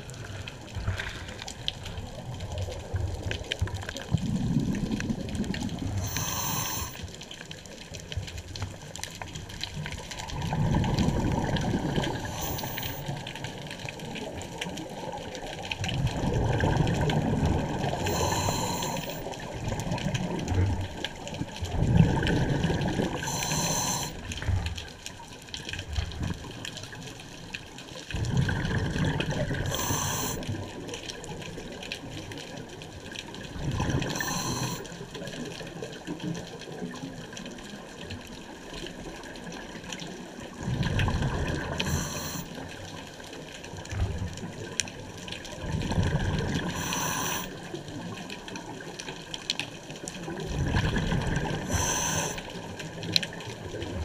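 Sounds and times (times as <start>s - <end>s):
bubbling underwater exhales: 0.0s - 7.2s, 9.6s - 25.0s, 28.1s - 31.9s, 33.4s - 37.3s, 39.2s - 43.2s, 43.8s - 48.7s, 50.1s - 54.0s
regulator valve hiss: 6.0s - 7.0s, 23.3s - 24.1s, 29.7s - 30.4s, 46.8s - 47.5s, 51.7s - 52.4s.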